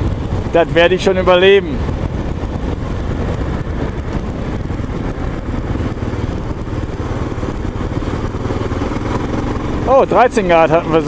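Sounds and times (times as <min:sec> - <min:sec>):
motorcycle engine running: 0:00.0 - 0:11.0
road noise: 0:00.0 - 0:11.0
wind rush: 0:00.0 - 0:11.0.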